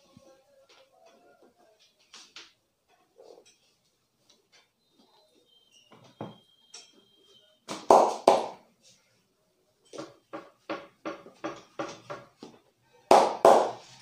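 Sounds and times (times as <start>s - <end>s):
hand slapping a back: 7.7s - 8.6s, 13.1s - 13.9s.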